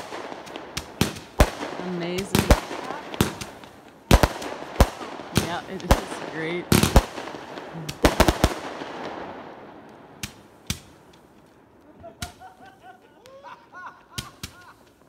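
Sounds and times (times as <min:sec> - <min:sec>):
crackling hiss of firework burst: 0:00.0 - 0:09.0, 0:09.8 - 0:11.6
firework bangs: 0:00.0 - 0:15.0.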